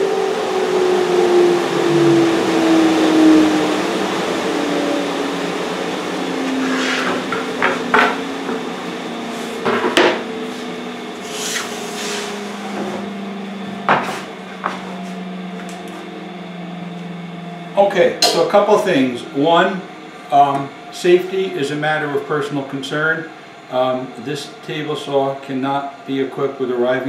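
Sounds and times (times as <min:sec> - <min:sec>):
machine tone sliding down: 0:00.0 - 0:26.7
dust collector humming: 0:00.0 - 0:27.0
wooden boards knocking: 0:07.0 - 0:08.6, 0:09.6 - 0:10.2.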